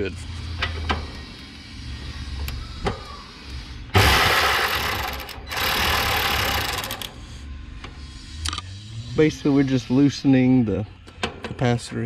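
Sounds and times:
cordless power driver running: 4.0s - 7.2s.

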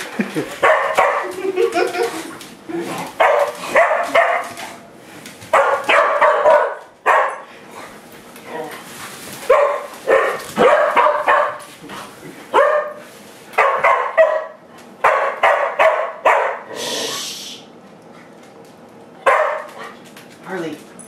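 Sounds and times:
dog barking sharply: 0.6s - 1.3s, 3.2s - 4.5s, 5.5s - 7.4s, 9.5s - 11.6s, 12.6s - 13.0s, 13.6s - 16.7s, 19.2s - 19.7s.

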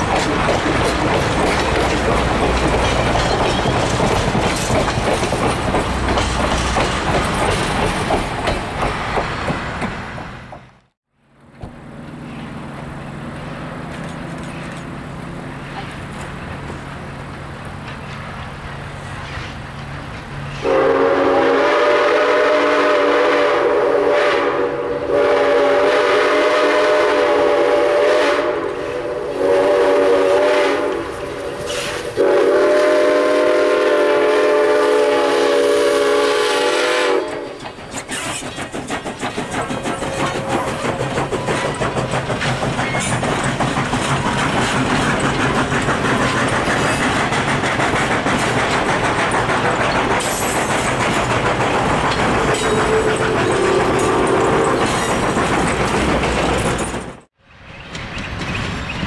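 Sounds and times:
train wheels clacking: 0.0s - 10.9s, 13.3s - 23.6s, 25.2s - 59.0s
steam whistle blasts: 20.6s - 31.1s, 31.8s - 37.6s, 52.6s - 54.8s.

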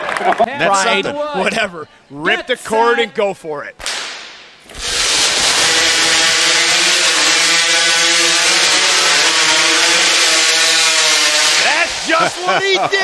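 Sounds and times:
chainsaws cutting logs: 3.9s - 13.0s.

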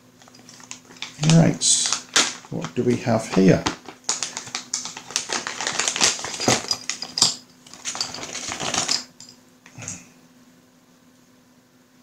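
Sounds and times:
plastic bag crinkling: 0.2s - 9.2s.

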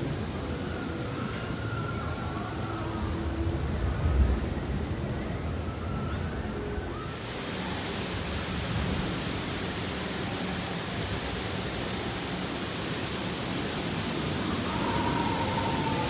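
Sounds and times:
bright hiss: 7.1s - 16.0s.

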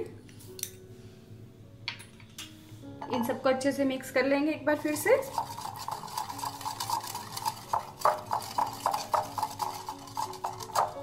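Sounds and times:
whisk clinking against glass bowl: 5.2s - 11.0s.

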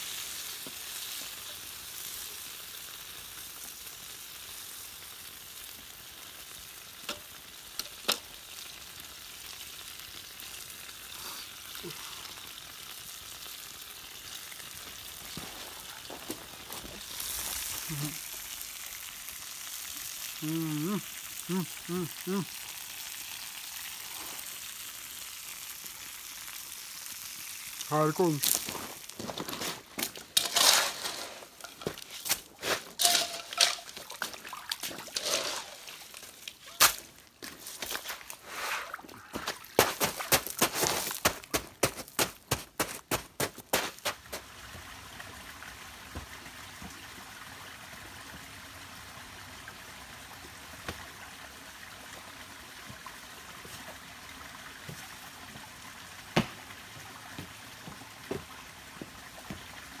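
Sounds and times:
water poured on campfire: 0.0s - 60.0s
rocky stream flowing: 27.8s - 45.3s.

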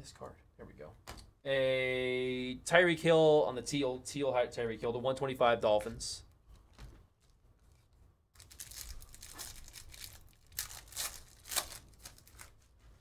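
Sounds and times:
foil wrapper tearing: 8.4s - 12.6s.

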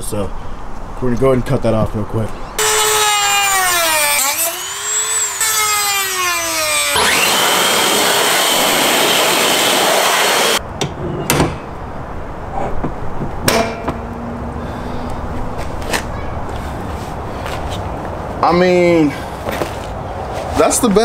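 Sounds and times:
rotary tool cutting wheel grinding: 2.6s - 10.6s.

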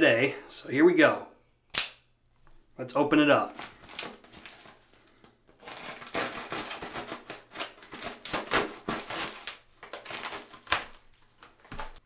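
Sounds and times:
envelope rustling and tearing: 3.5s - 12.0s.

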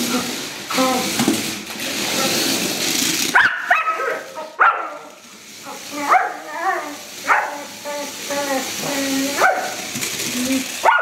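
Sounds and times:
dog barking: 3.4s - 5.1s, 6.1s - 6.4s, 7.3s - 7.7s, 9.4s - 9.8s.

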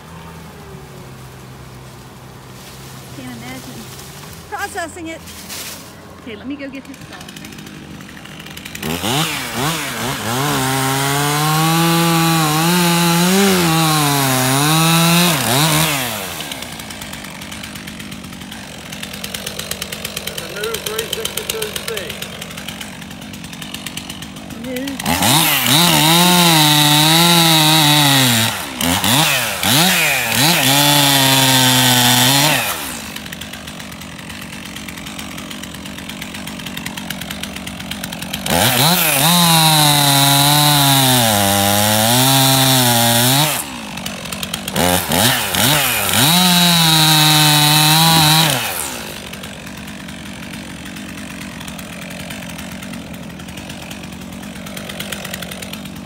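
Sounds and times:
chainsaw cutting log: 0.0s - 56.0s
chainsaw revving and idling: 0.0s - 56.0s.

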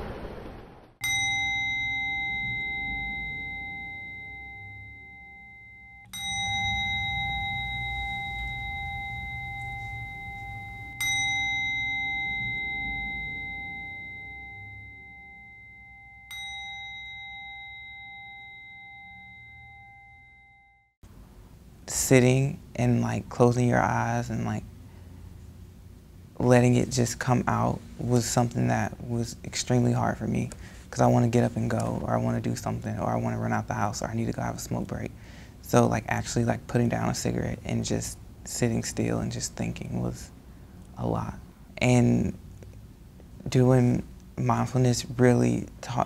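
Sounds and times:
meditation bell ringing: 1.0s - 21.0s.

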